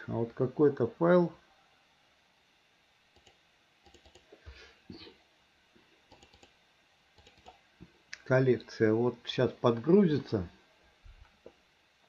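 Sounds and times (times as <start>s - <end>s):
faint mouse clicks: 3.1s - 4.3s.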